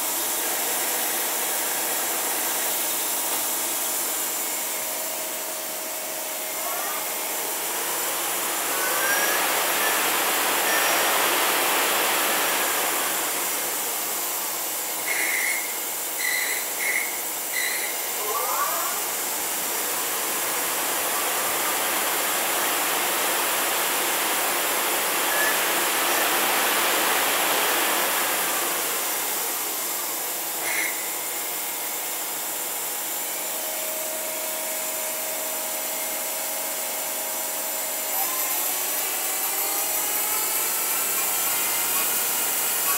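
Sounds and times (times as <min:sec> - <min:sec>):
lathe spindle drive whining: 0:00.0 - 0:14.3, 0:37.8 - 0:42.9
rushing hiss of spinning chuck: 0:00.0 - 0:18.2, 0:19.0 - 0:31.2, 0:37.2 - 0:42.9.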